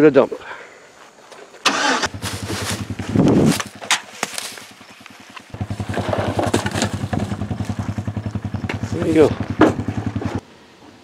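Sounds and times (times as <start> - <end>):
plastic bags rustling: 2.1 - 4.8
pickup truck engine idling: 4.9 - 10.3
heavy thump: 8.6 - 10.4.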